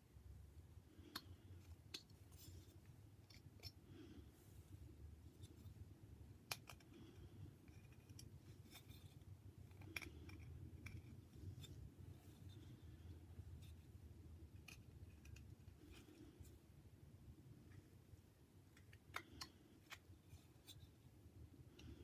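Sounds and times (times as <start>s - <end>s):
knife carving wood: 6.5s - 11.9s.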